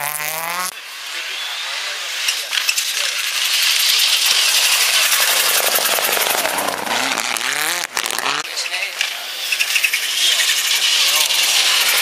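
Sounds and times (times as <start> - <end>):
car engine revving: 0.0 - 12.0
tyres rushing through snow: 0.8 - 8.5
rally car passing at speed: 3.3 - 8.5.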